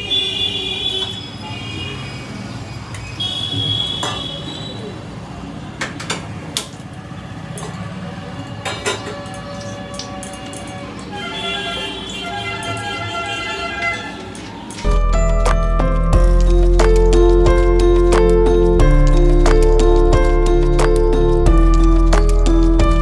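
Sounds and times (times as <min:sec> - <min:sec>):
vehicle horn tooting: 0:00.0 - 0:02.1, 0:03.2 - 0:04.9, 0:08.5 - 0:14.8
street traffic hum: 0:00.0 - 0:23.0.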